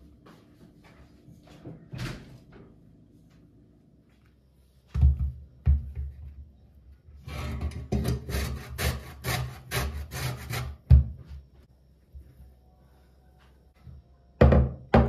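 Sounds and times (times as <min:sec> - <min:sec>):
zest grating on metal grater: 0:07.3 - 0:10.8.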